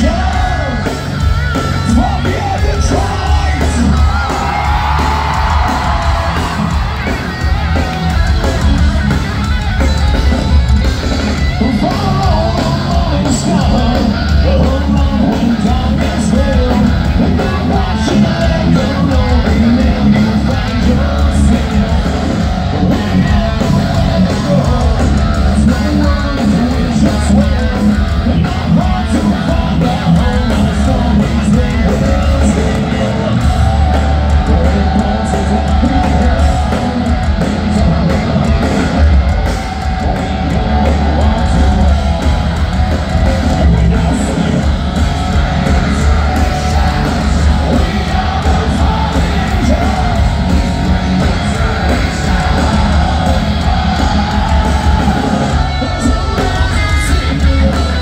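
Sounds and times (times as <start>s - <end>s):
live hard rock band: 0.0s - 58.0s
person singing: 39.8s - 58.0s.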